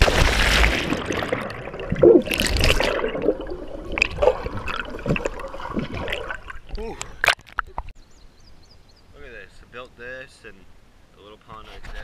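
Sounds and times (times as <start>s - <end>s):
person splashing into pool: 0.0s - 6.6s
underwater bubbling: 0.0s - 7.9s.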